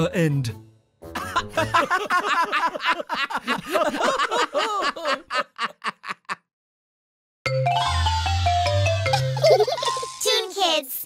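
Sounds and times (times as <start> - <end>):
cartoon voices laughing: 1.2 - 6.4, 9.2 - 10.2.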